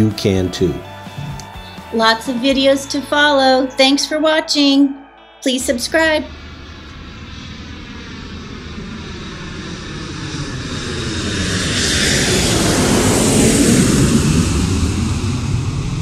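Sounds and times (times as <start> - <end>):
airplane flying past: 5.0 - 16.0.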